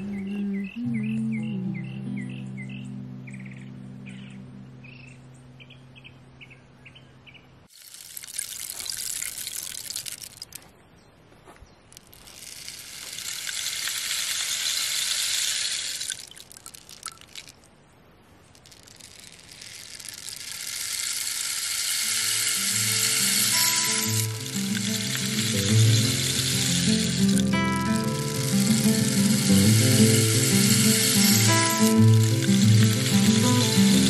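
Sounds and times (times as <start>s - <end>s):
rain stick pellets rushing: 7.7s - 10.7s, 11.9s - 17.7s, 18.4s - 34.0s
low musical notes: 22.4s - 34.0s.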